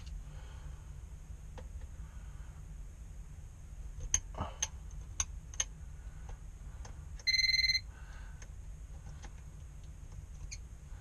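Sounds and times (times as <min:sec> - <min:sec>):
voltage detector pen beep: 0:07.2 - 0:07.9.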